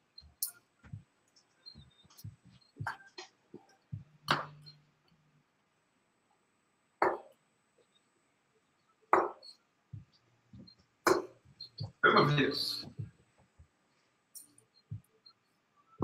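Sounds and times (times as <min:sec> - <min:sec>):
sharp knocks: 0:07.0 - 0:07.3, 0:09.2 - 0:09.4, 0:11.1 - 0:12.0.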